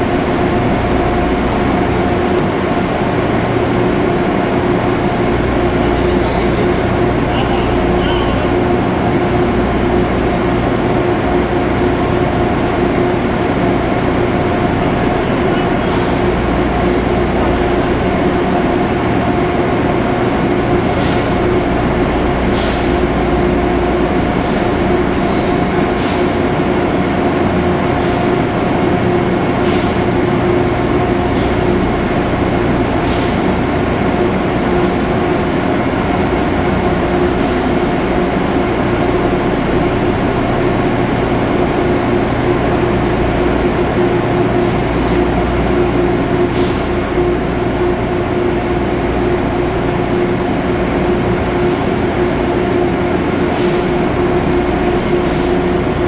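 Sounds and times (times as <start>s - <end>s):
textile mill machinery drone: 0.0s - 56.0s.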